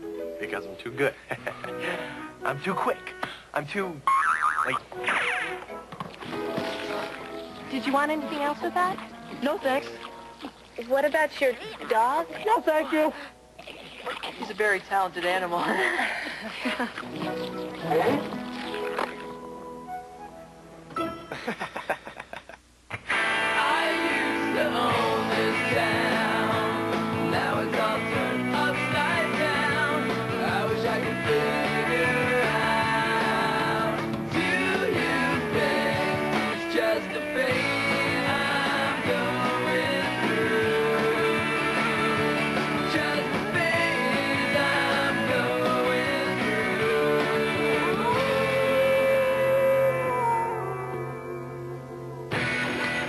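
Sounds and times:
rock song with guitar and singing: 22.9s - 53.0s.

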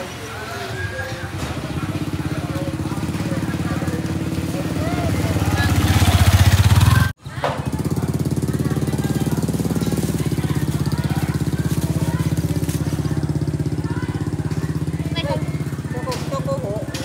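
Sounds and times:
small engine idling: 0.0s - 17.0s.

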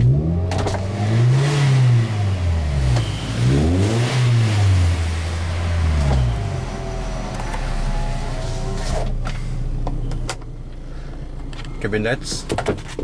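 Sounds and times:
car engine revving and idling: 0.0s - 12.5s.

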